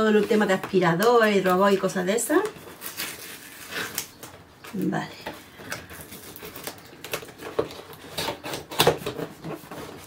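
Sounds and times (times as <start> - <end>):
fingernails peeling tape: 2.7 - 4.3, 5.8 - 10.0.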